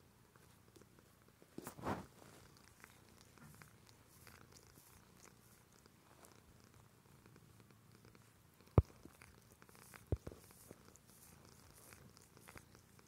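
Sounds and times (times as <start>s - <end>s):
cat purring: 0.4s - 13.0s
rustling: 1.5s - 6.4s
cat licking ticks: 8.7s - 13.0s.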